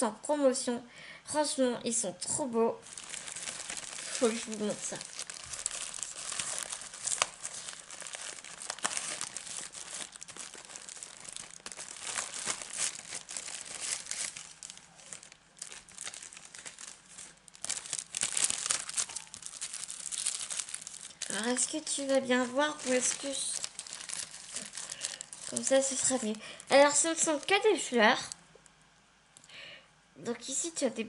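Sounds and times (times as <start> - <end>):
plastic tearing: 2.8 - 27.7
plastic packaging crinkling: 2.8 - 28.8.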